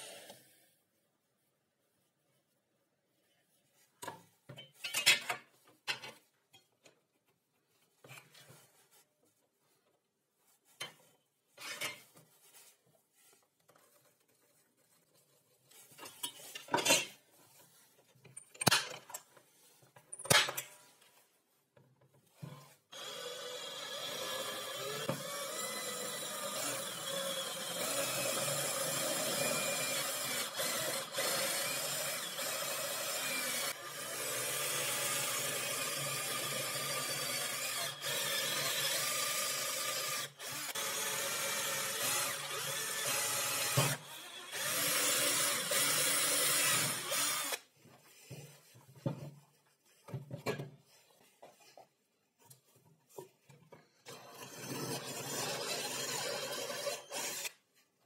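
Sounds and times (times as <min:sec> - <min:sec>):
drill boring through sheet metal: 0:22.9 - 0:47.6, 0:54.1 - 0:57.6.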